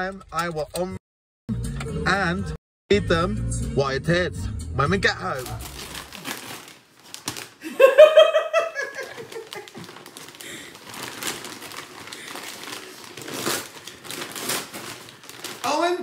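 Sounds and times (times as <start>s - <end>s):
wrapping paper tearing: 5.3s - 7.6s, 9.0s - 16.0s.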